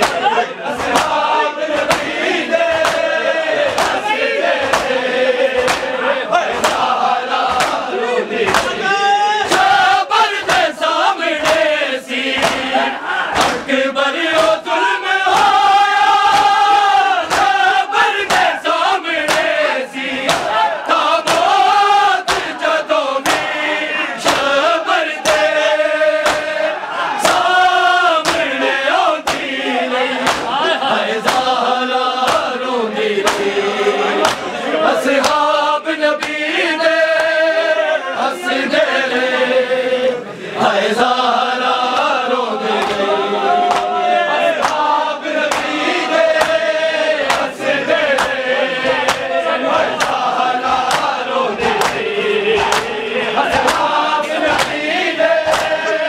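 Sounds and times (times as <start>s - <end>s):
hands striking chests: 0.0s - 1.2s, 1.8s - 3.1s, 3.7s - 5.0s, 5.6s - 5.9s, 6.6s - 6.9s, 7.5s - 7.8s, 8.5s - 8.8s, 12.4s - 12.7s, 20.2s - 20.6s, 26.2s - 26.6s, 28.2s - 28.6s, 29.2s - 29.5s, 30.2s - 30.6s, 33.2s - 33.5s, 43.6s - 44.0s, 49.9s - 54.8s
men chanting a lament in chorus: 0.0s - 56.0s.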